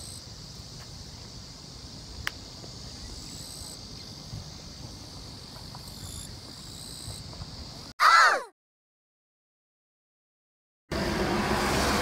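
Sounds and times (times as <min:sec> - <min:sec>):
insects chirring: 0:00.0 - 0:08.3.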